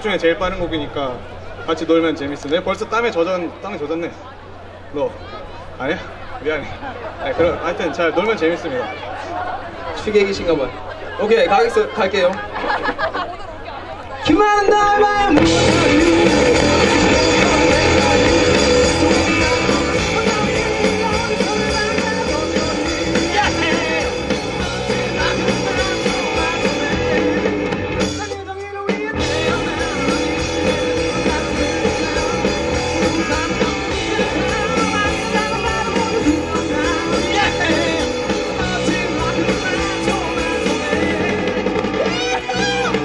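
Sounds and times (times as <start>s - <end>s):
person singing: 14.6s - 43.0s
electric guitars: 14.9s - 43.0s
drum kit: 15.3s - 43.0s.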